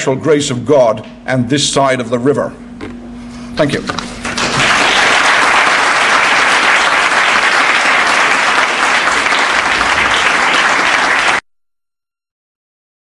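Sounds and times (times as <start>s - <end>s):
audience applauding: 4.2s - 11.4s.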